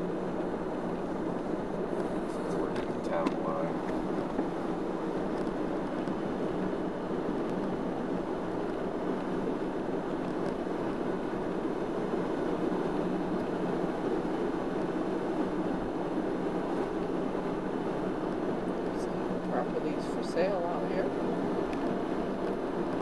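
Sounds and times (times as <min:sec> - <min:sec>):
car road noise on wet pavement: 0:00.0 - 0:23.0.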